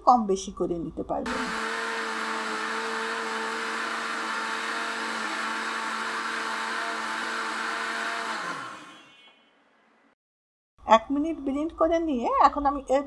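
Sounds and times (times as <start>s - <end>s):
electric blender running: 1.3s - 9.4s.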